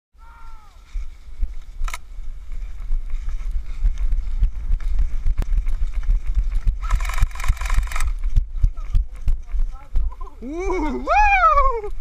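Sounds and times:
person shouting: 0.2s - 0.8s, 10.4s - 12.0s
running footsteps on grass: 0.3s - 12.0s
wind on microphone: 0.4s - 12.0s.

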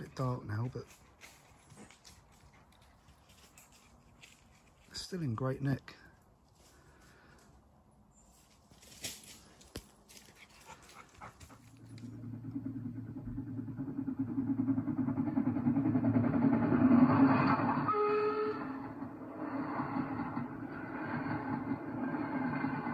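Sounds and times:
steam train passing: 0.0s - 0.9s, 10.7s - 22.9s.

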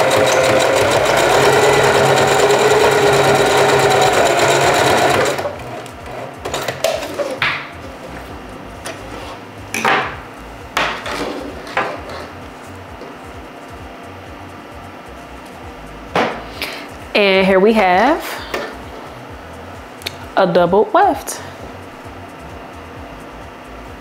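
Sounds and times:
sewing machine stitching: 0.0s - 7.4s.

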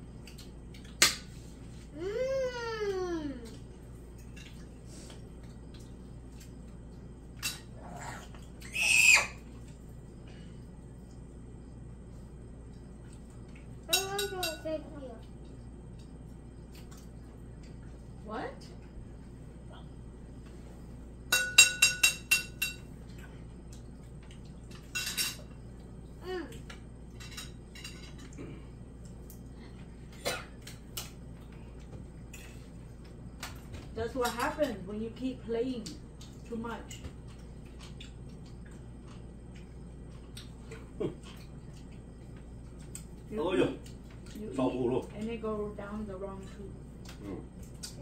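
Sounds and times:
child crying: 2.0s - 3.5s
child squealing: 8.6s - 9.4s
cutlery clinking on a dish: 13.9s - 14.6s, 21.3s - 22.9s, 24.8s - 25.5s, 27.1s - 28.4s.

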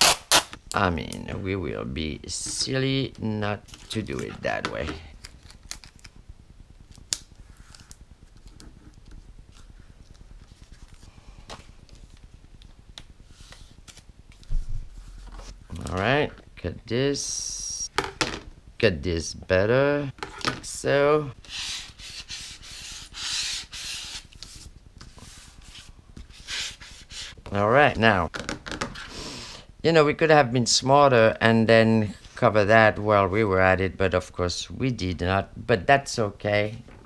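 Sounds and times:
tape and paper rustling: 3.7s - 6.1s
hands rubbing cardstock: 21.4s - 27.4s.

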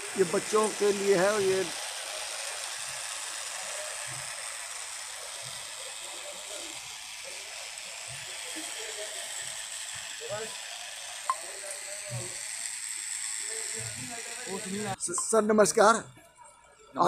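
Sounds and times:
even hiss: 0.0s - 9.6s
faint indistinct voices: 0.0s - 15.2s.

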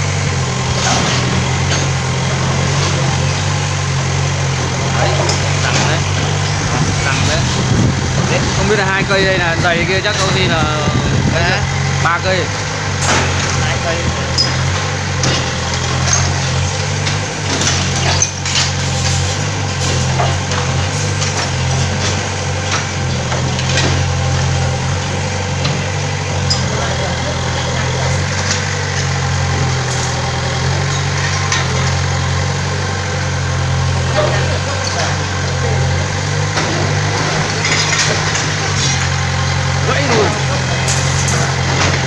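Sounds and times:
excavator diesel engine running: 0.0s - 42.0s
falling bricks and rubble clatter: 13.0s - 27.0s, 27.9s - 42.0s.

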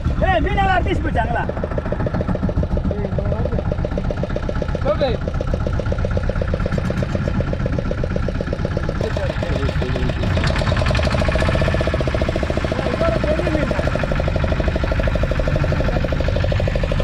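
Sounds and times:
boat engine idling: 0.0s - 17.0s.

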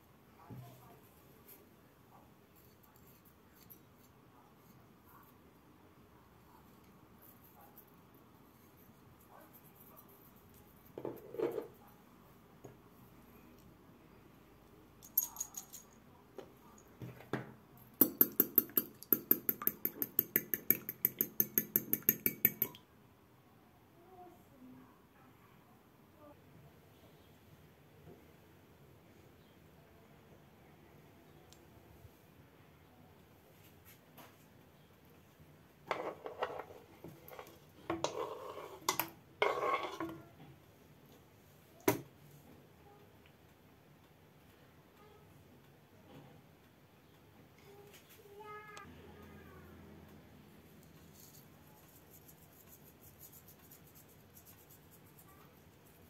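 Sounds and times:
fork whisking eggs in bowl: 18.0s - 22.8s
utensil knocking: 18.0s - 22.8s
fork scraping on cutting board: 35.9s - 40.2s.

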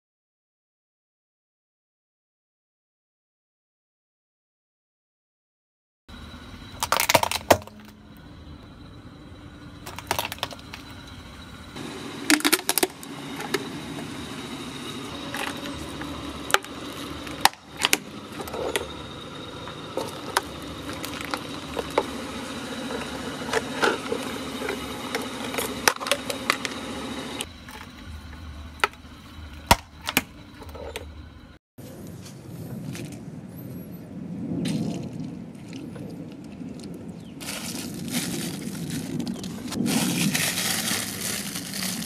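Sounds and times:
car tyre rumbling on concrete: 6.1s - 31.6s
plastic toys cracking: 6.8s - 7.9s, 9.8s - 10.8s.

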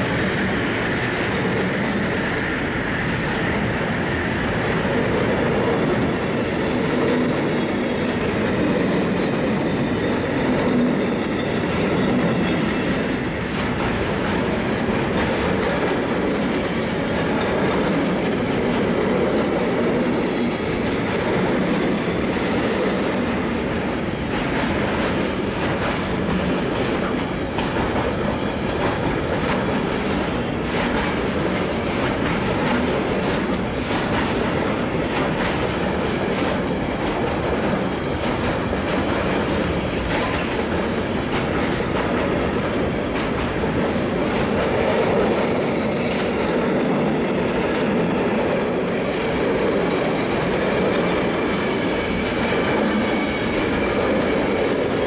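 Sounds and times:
train wheels rumbling on rails: 0.0s - 55.0s
wheels clicking over rail joints: 13.4s - 51.2s.

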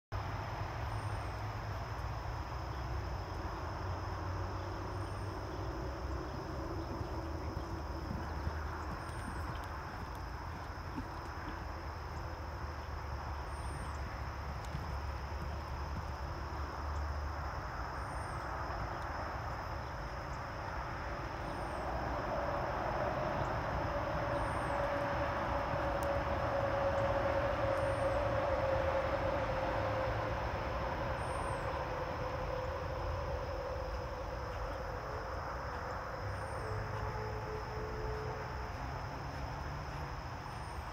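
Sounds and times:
constant hiss: 0.2s - 40.9s
distant engine hum: 0.2s - 40.9s
high insect drone: 0.4s - 40.9s.

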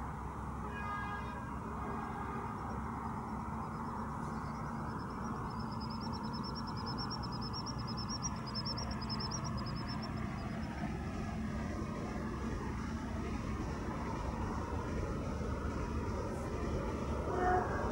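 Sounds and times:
low background rumble: 1.5s - 17.9s.

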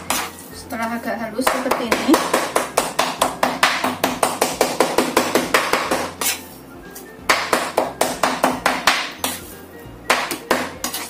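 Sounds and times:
knife chopping on a wooden board: 1.4s - 6.4s, 7.3s - 9.4s, 10.1s - 11.0s.

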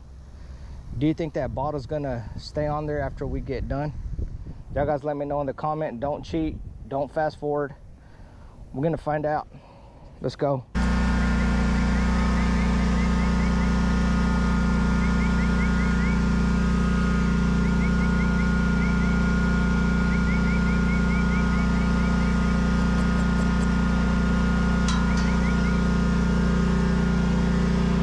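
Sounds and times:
lawn mower engine idling: 10.8s - 28.0s.

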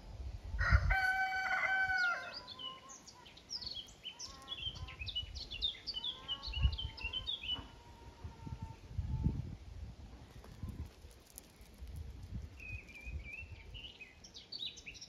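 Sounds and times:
rooster crowing: 0.6s - 2.4s
small birds chirping: 2.0s - 7.9s, 10.3s - 15.0s.

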